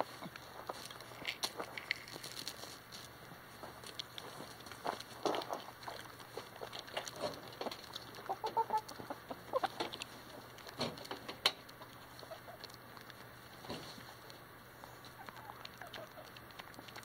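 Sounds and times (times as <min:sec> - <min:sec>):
beaks tapping the ground: 0:00.0 - 0:17.0
chickens clucking softly: 0:05.2 - 0:10.7, 0:11.6 - 0:17.0.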